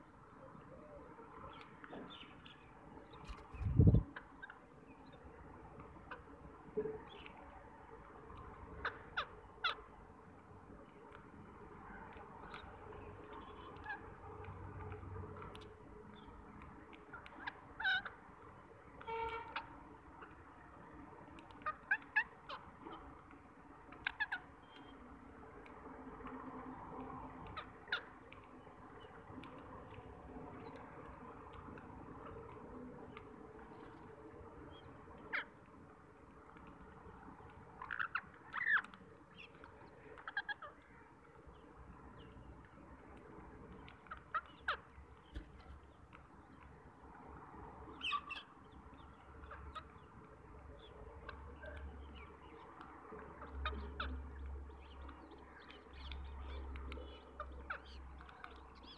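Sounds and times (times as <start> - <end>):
parakeets giving sharp calls: 8.7 - 9.9, 13.4 - 14.2, 17.1 - 18.3, 19.0 - 20.4, 21.5 - 23.1, 23.9 - 24.9, 27.4 - 28.3, 34.7 - 35.6, 37.4 - 41.6, 43.8 - 45.4, 48.0 - 50.1, 53.4 - 58.9
parakeets squawking: 17.1 - 18.2, 21.5 - 23.0, 24.0 - 24.8, 27.4 - 28.2, 37.8 - 39.5, 40.2 - 41.0, 44.0 - 45.0, 48.0 - 50.1.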